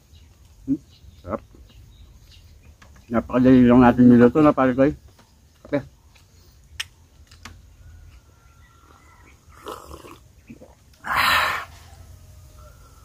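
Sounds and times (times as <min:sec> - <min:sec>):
person slurping coffee: 0:09.5 - 0:11.7.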